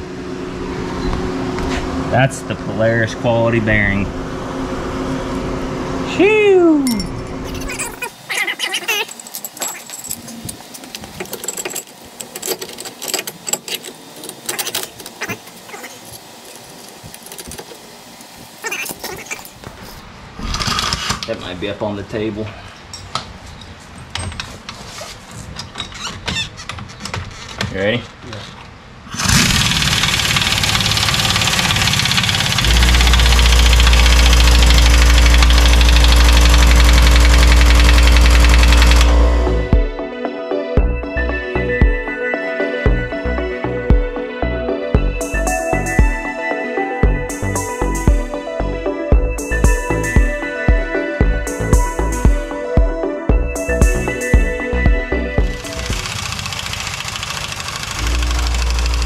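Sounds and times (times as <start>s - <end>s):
metal tools clinking and clanking: 6.8s - 7.8s, 8.9s - 15.2s, 22.8s - 24.6s
air impact wrench hammering: 29.1s - 39.7s, 55.4s - 59.0s.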